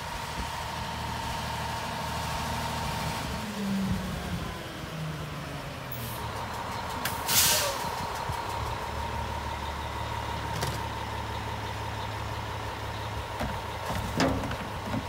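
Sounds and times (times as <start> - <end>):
truck engine idling: 0.0 - 15.0
air brake hiss: 7.3 - 7.9.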